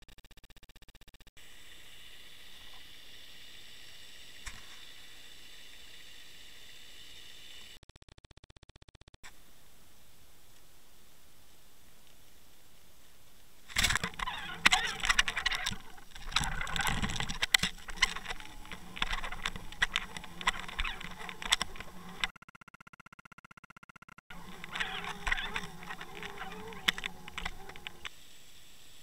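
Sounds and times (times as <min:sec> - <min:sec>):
underwater hiss: 0:01.4 - 0:07.8
crackling and clicking: 0:13.4 - 0:28.2
pulsing buzz: 0:13.7 - 0:22.3, 0:24.3 - 0:29.0.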